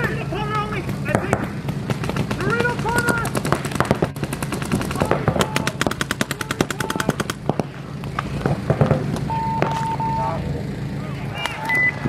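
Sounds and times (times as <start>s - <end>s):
paintball markers firing: 0.0s - 10.0s.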